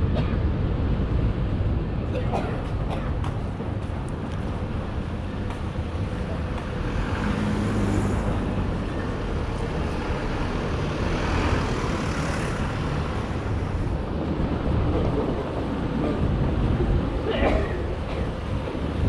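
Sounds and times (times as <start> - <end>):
rumble of passing cars: 0.0 - 19.0
vehicle passing by: 6.3 - 14.9.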